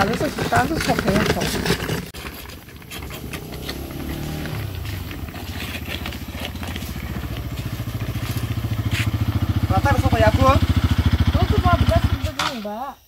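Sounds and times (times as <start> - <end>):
motorcycle engine putter: 0.0 - 12.8.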